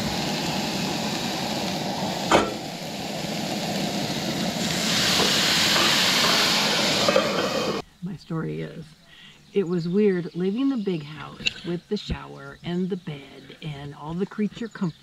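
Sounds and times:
sauce hissing in hot pan: 0.0s - 7.8s
vegetables sizzling in a skillet: 0.0s - 7.8s
sharp metallic knock: 2.3s - 2.6s.

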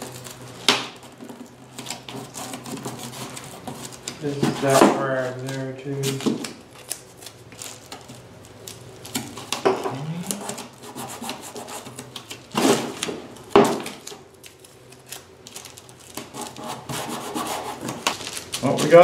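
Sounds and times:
hands rubbing tape on foam: 1.8s - 6.2s, 9.3s - 12.7s, 16.1s - 19.0s.

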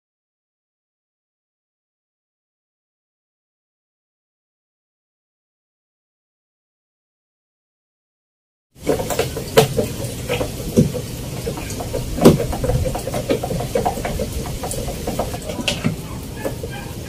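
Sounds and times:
steady background noise: 8.8s - 17.0s.

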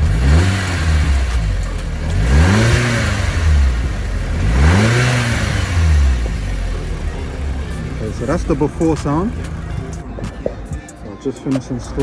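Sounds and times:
car engine revving: 0.0s - 10.8s.

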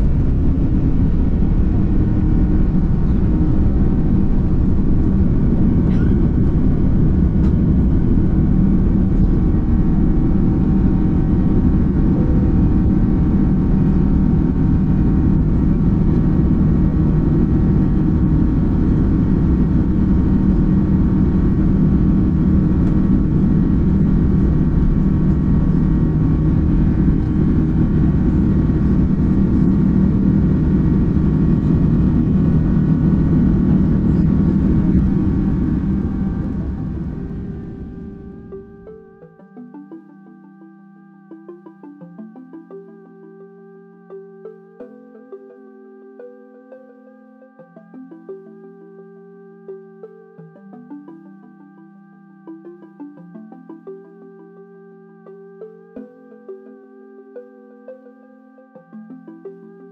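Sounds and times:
jet engines roaring at takeoff: 0.0s - 40.0s.

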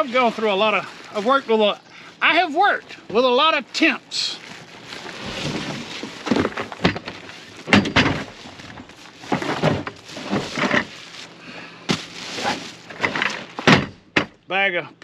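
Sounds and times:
plastic crinkling: 0.0s - 13.0s
cardboard scraping: 4.4s - 13.6s
sharp knocks and thumps: 5.3s - 11.0s, 11.9s - 14.4s.

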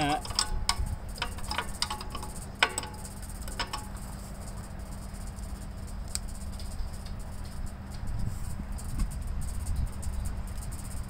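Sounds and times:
wrench clicking on metal: 0.0s - 4.2s
steady low hum: 0.0s - 11.0s.

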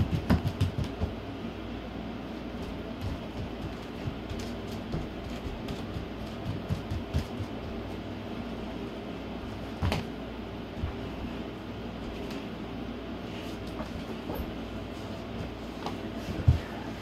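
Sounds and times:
footsteps on wood floor: 2.5s - 8.0s, 13.6s - 17.0s.

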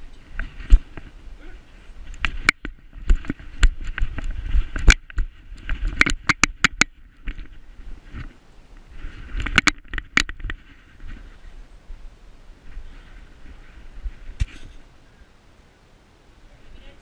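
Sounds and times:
sharp clicks and knocks: 2.1s - 7.5s, 9.4s - 10.6s.

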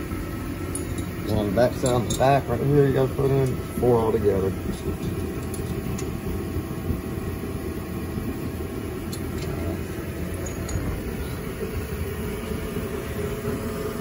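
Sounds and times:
low mechanical hum: 0.0s - 14.0s
metal hardware clicks: 4.9s - 6.1s.

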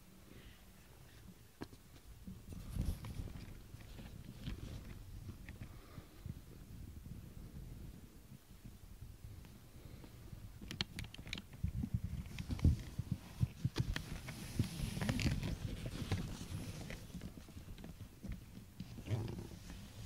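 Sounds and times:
fur rustling on microphone: 11.8s - 18.2s.

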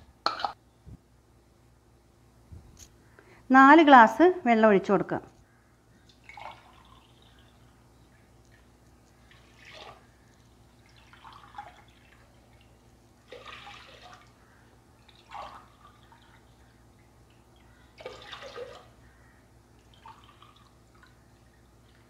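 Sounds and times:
water pouring into pot: 9.3s - 10.1s, 10.8s - 12.6s, 13.3s - 14.4s.

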